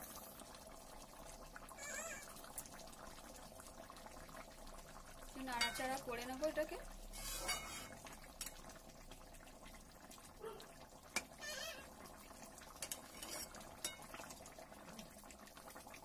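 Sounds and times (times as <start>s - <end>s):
faint bubbling of simmering food: 0.0s - 16.0s
spatula scraping a pan: 7.1s - 8.0s, 12.8s - 14.0s.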